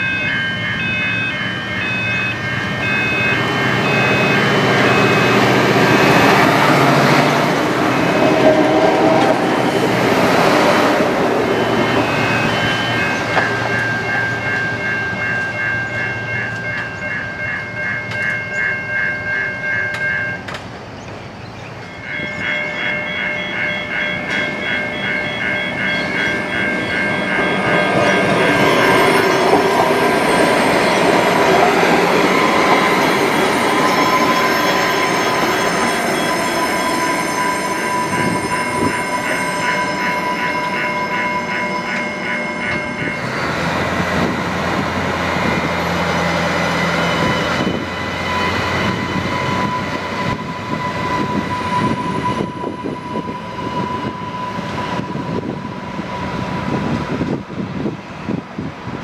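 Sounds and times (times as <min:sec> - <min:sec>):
level crossing bells ringing: 0:00.0 - 0:20.6, 0:21.8 - 0:56.3
diesel train passing: 0:00.0 - 0:59.0.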